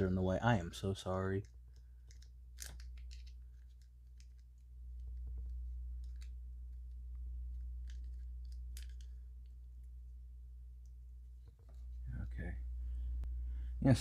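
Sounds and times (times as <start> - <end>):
small plastic pieces clicking: 1.4 - 6.4, 7.8 - 9.2.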